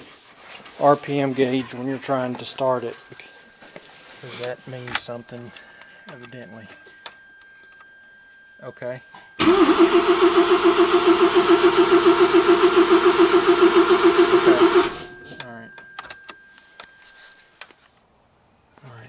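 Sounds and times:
starter cranking engine: 9.4s - 15.0s.

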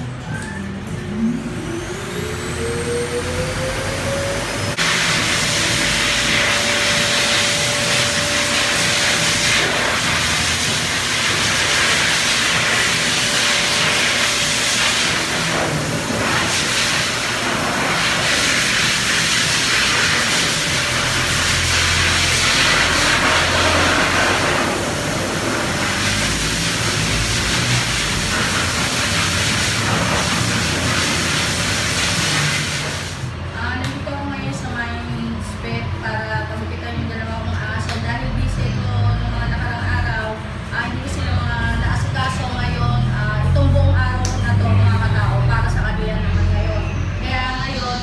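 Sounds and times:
electric motor whining: 1.0s - 9.5s
loud rushing hiss: 4.5s - 33.4s.

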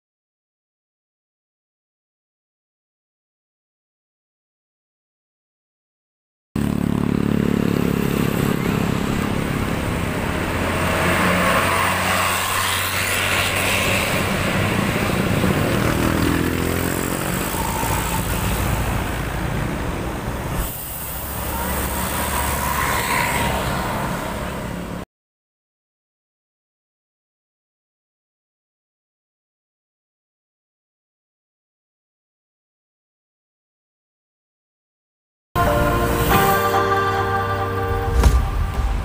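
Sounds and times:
vehicles passing on road: 6.6s - 25.1s, 35.6s - 39.0s.

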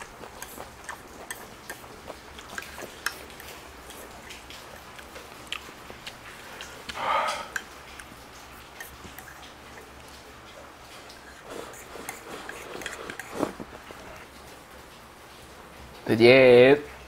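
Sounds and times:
breathy mouth sound: 0.0s - 10.0s, 11.1s - 14.2s.

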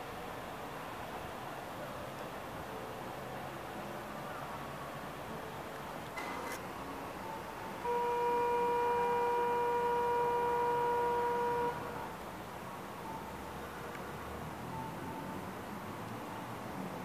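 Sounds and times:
steady signal tone: 7.2s - 12.1s.

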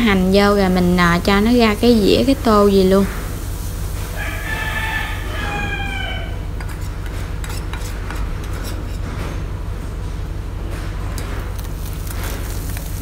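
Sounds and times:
rooster crowing: 4.1s - 6.6s.

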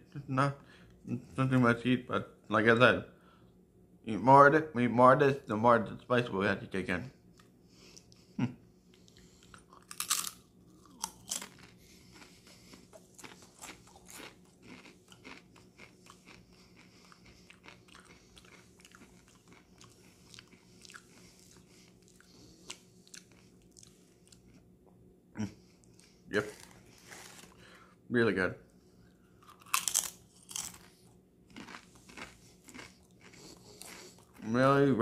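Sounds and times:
tortilla chip crunching: 9.6s - 21.6s, 26.4s - 27.6s, 29.4s - 30.9s, 31.5s - 34.6s.

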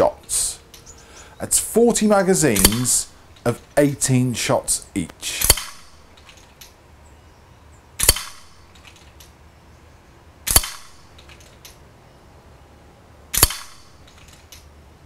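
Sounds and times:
air rifle shots: 2.5s - 3.1s, 5.3s - 6.1s, 8.0s - 8.9s, 10.4s - 11.2s, 13.3s - 14.2s.

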